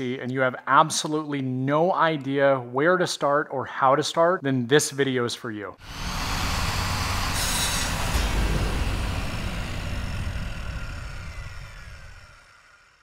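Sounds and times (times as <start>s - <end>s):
deep rumbling swell: 5.8s - 13.0s.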